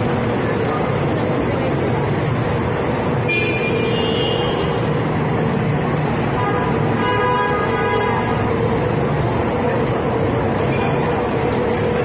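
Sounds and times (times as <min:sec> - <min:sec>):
traffic and engine noise: 0:00.0 - 0:12.0
vehicle horn tooting: 0:03.3 - 0:04.8, 0:07.0 - 0:08.3.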